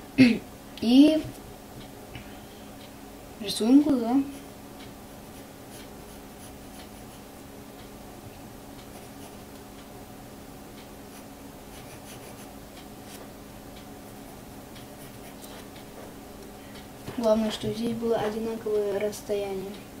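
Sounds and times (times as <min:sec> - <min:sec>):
steady low hum: 0:00.0 - 0:20.0
pencil scratching on paper: 0:05.3 - 0:07.3, 0:08.8 - 0:09.4, 0:11.1 - 0:12.5, 0:15.0 - 0:15.7.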